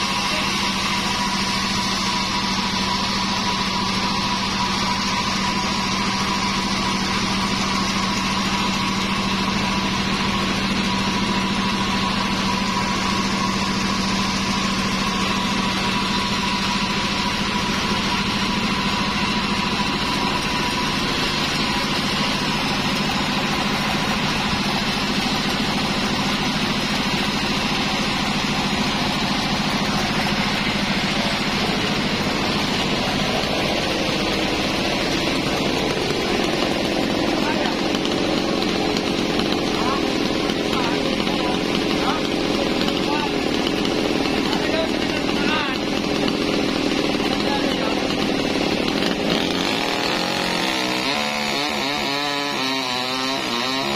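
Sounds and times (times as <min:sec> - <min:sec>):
sawmill motor hum: 0:00.0 - 0:53.9.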